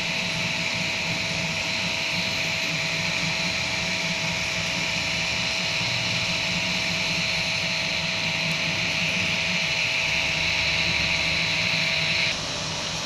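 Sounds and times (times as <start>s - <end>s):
cooling fans whirring: 0.0s - 13.0s
stepper motors humming: 0.0s - 13.0s.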